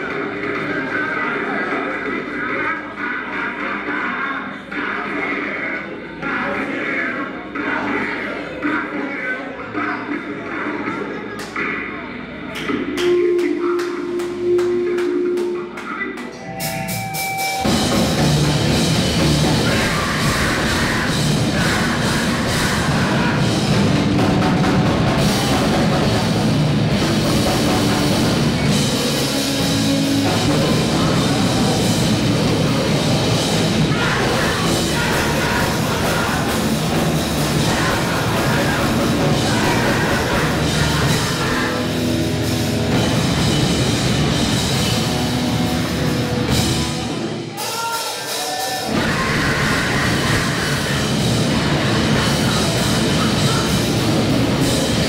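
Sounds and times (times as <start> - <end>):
distorted electric guitars: 11.5 - 55.0
pounding drum kit: 12.6 - 55.0
bass guitar: 16.2 - 47.6, 48.8 - 55.0.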